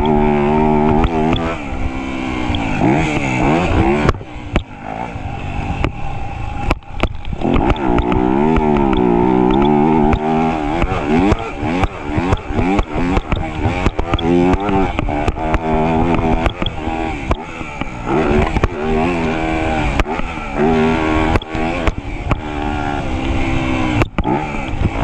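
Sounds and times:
dirt bike engine revving: 0.0 - 25.0
sharp knocks and clatter: 6.6 - 18.8.

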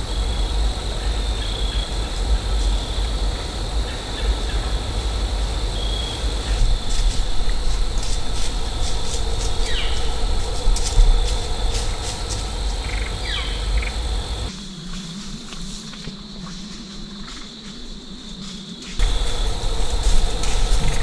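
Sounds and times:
low rumble: 0.0 - 14.5, 19.0 - 21.0
high insect drone: 0.0 - 21.0
falling bird calls: 5.8 - 14.5.

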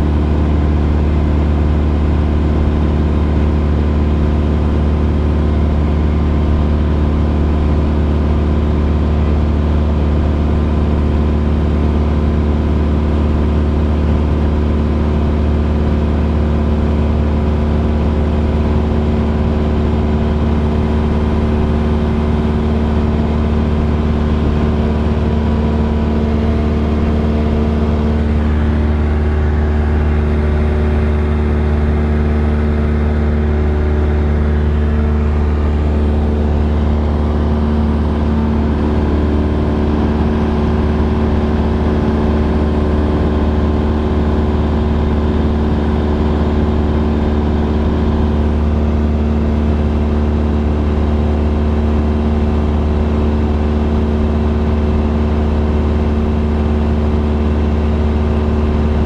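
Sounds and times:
airplane engine droning in cabin: 0.0 - 59.0.

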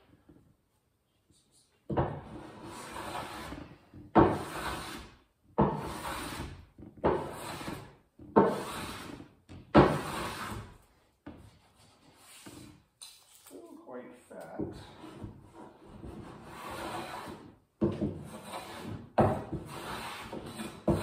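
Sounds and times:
hand plane strokes on wood: 2.1 - 12.8, 14.7 - 21.0.

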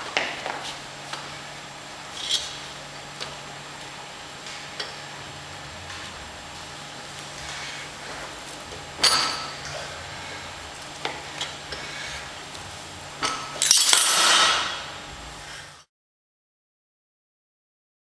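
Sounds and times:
metal clinking on weight plates: 9.0 - 9.7, 13.2 - 14.9.

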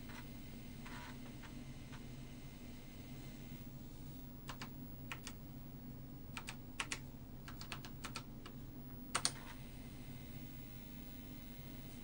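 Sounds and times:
keyboard key clicks: 4.5 - 5.4, 6.4 - 8.2.

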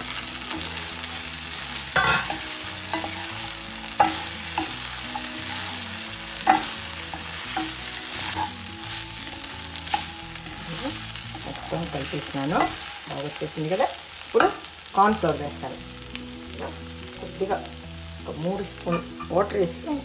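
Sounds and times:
sauce sizzling in a pan: 0.0 - 20.0
spatula scraping a pan: 2.0 - 9.1.

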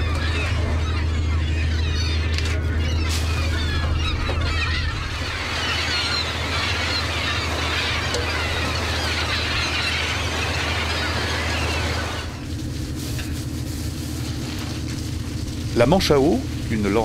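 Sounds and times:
boat engine drone: 0.0 - 17.0
gulls calling: 0.0 - 17.0.

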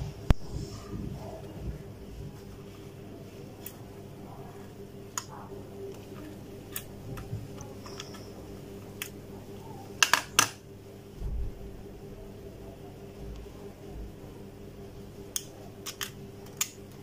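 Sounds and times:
plastic clicks and handling noise: 15.3 - 17.0.

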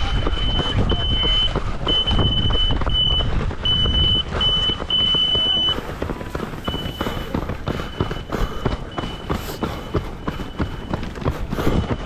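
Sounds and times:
high electronic beeping: 0.0 - 5.8, 6.5 - 12.0
wind rumble on microphone: 0.0 - 7.9
running footsteps: 0.0 - 12.0.

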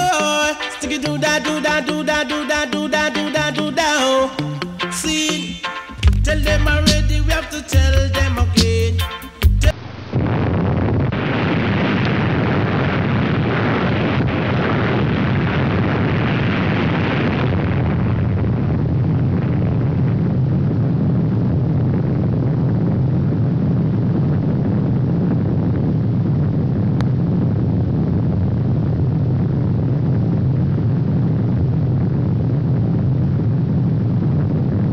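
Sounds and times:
low rumble of bomb blast: 10.1 - 34.9.

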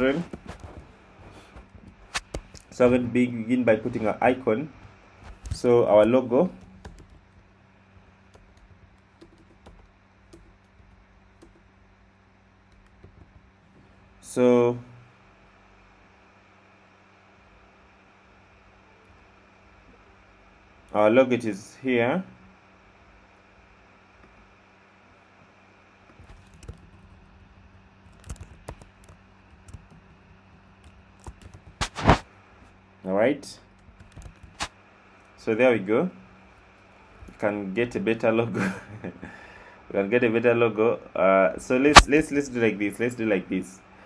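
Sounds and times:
low electrical hum: 0.0 - 44.0
soft keyboard typing: 5.3 - 11.8, 12.7 - 13.5, 26.1 - 32.2, 33.6 - 34.7.

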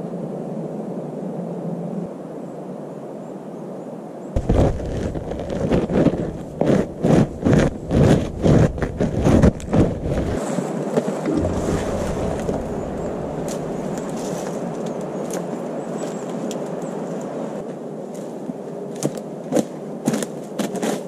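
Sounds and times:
boots crunching on snow: 4.4 - 10.4.

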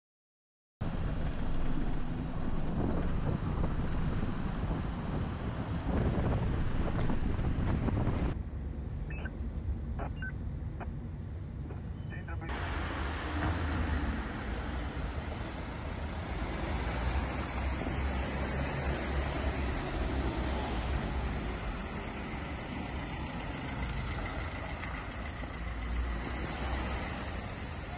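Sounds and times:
wind rumble on microphone: 0.8 - 12.0
car engine and tyres humming: 0.8 - 27.9.

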